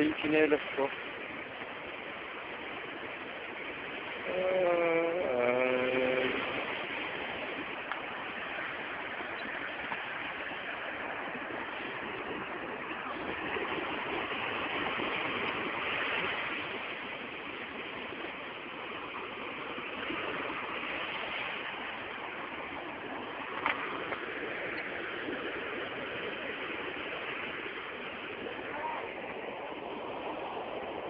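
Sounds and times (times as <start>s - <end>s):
waves breaking on sand: 0.0s - 31.0s.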